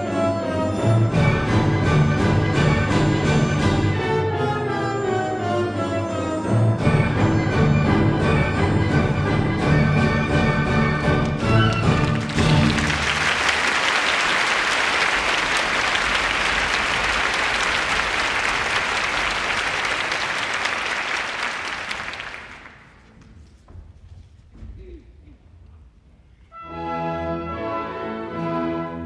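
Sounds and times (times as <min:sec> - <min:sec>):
audience applauding: 0:11.2 - 0:23.1.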